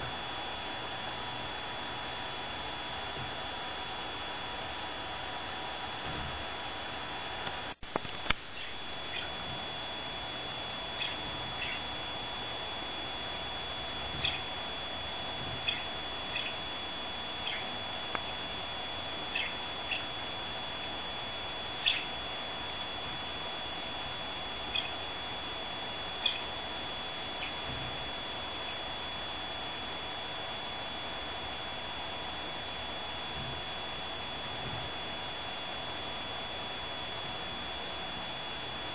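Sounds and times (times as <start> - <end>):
thin high whine: 0.0 - 38.9
budgerigar chirping: 8.6 - 9.4, 11.0 - 11.9, 14.1 - 14.5, 15.6 - 16.6, 17.4 - 17.8, 19.3 - 20.1, 21.8 - 22.1, 24.7 - 25.0, 26.2 - 26.5.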